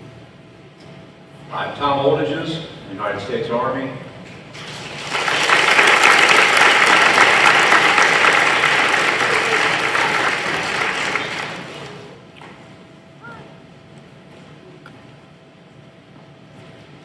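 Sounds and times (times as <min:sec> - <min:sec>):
audience applauding: 0:04.6 - 0:12.1.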